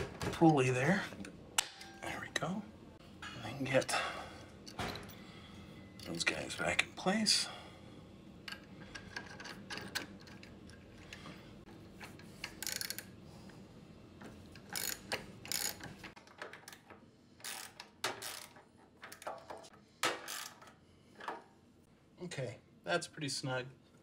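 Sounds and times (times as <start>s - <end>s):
ratchet wrench clicking: 12.4s - 13.1s, 14.6s - 15.9s.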